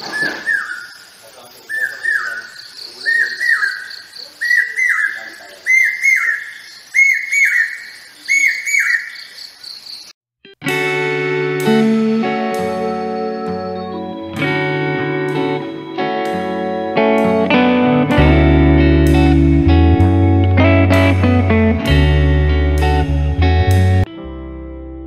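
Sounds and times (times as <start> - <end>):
bird calling shrill whistles: 0.0 - 10.1, 12.8 - 14.4
plucked guitar music: 10.4 - 25.0.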